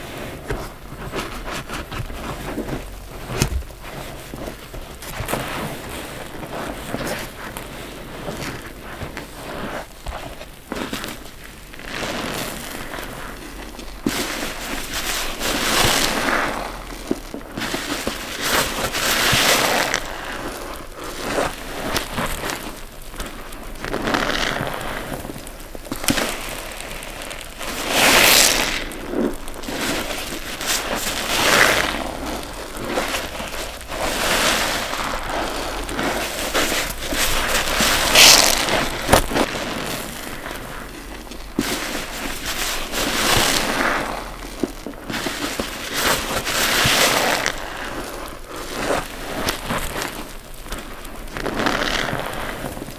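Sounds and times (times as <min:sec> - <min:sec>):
wet sponges squelching: 0:00.0 - 0:52.9.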